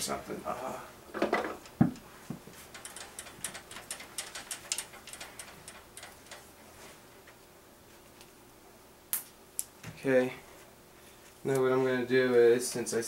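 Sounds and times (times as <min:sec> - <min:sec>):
small objects clicking and tapping: 0:01.6 - 0:06.5.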